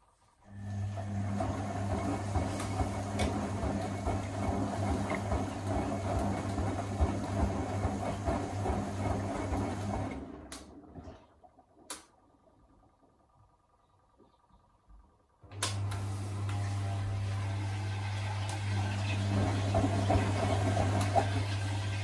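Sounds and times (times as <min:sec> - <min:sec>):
washing machine motor hum: 0:00.0 - 0:22.0
washing machine click: 0:15.5 - 0:16.6.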